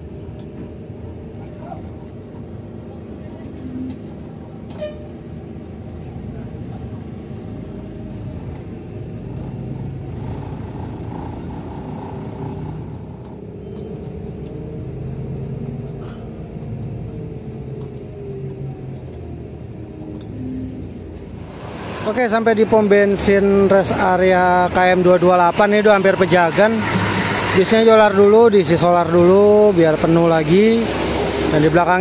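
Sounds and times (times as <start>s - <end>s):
faint whine: 0.0s - 11.2s, 13.2s - 22.9s
bus engine and road rumble: 0.0s - 32.0s.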